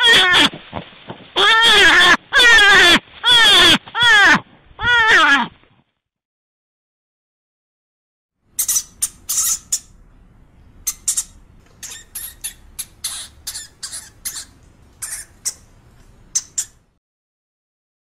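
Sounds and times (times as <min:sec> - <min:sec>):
hamster squeaking: 0:08.6 - 0:10.0, 0:10.8 - 0:15.7, 0:16.3 - 0:16.8.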